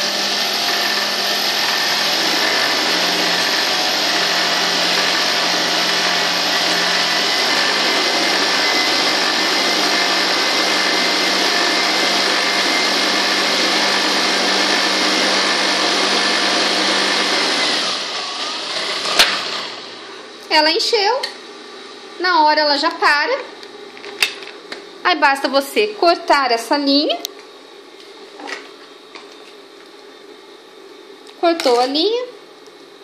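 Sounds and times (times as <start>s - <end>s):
sewing machine motor hum: 0.0s - 19.8s.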